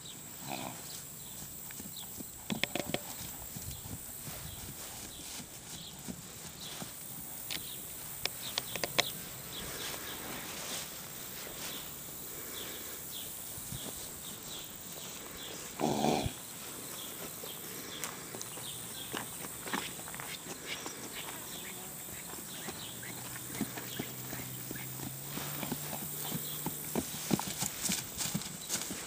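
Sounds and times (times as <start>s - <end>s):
hoof knocks: 1.3s - 9.2s, 22.2s - 29.0s.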